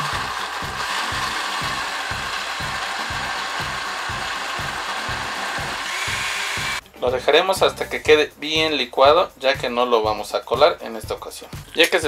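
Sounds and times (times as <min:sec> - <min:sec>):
blender motor running: 0:00.0 - 0:06.8.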